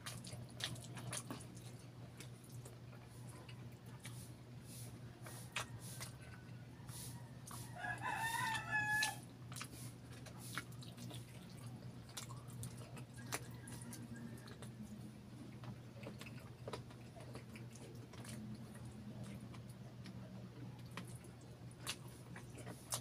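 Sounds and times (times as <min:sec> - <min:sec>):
wet chewing and lip smacking: 0:00.0 - 0:23.0
rooster crowing: 0:05.2 - 0:09.3, 0:13.2 - 0:14.8.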